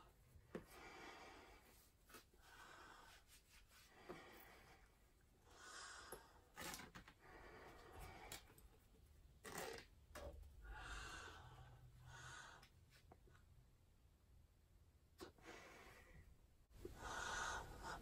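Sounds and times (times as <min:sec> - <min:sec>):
breathing through gas mask: 0:16.8 - 0:18.0.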